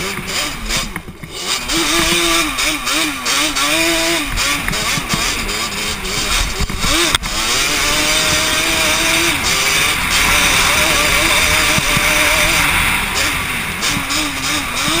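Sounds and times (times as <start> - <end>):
quad bike engine revving: 0.0 - 15.0
wind rushing on microphone: 4.2 - 15.0.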